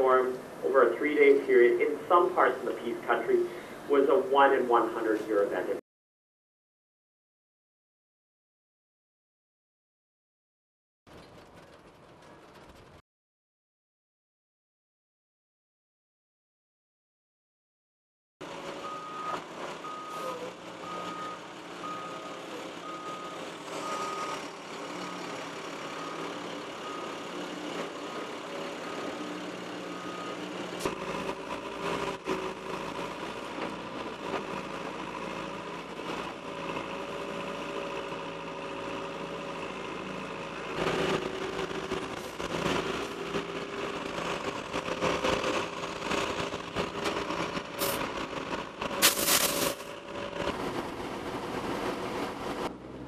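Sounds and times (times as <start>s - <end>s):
excavator diesel engine running: 0.0s - 5.8s, 11.1s - 13.0s, 18.4s - 53.0s
vehicle reversing alarm beeping: 18.8s - 31.0s.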